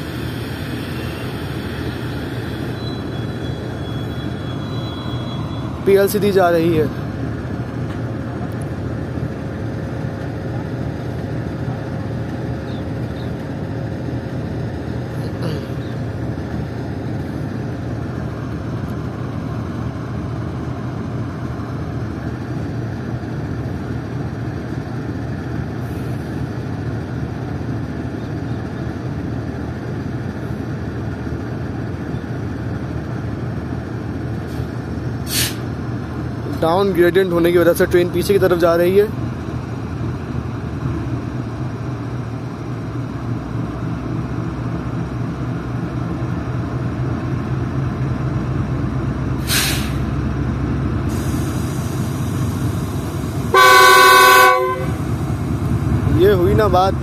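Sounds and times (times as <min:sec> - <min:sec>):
locomotive engine drone: 0:00.0 - 0:57.0.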